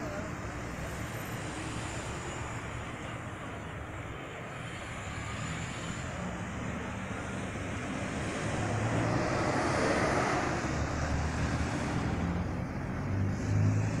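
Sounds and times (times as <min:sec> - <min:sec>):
road traffic passing: 0:00.0 - 0:14.0.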